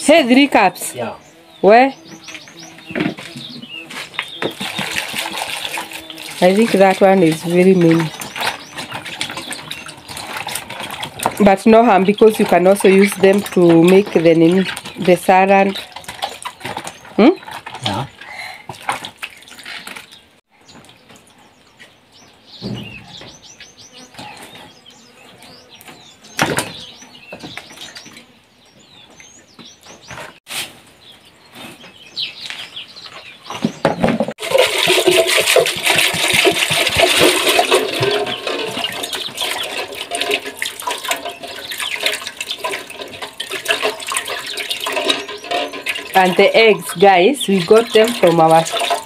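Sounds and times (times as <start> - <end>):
small birds chirping: 0.0 - 34.2, 37.0 - 49.0
knocks: 22.6 - 23.4.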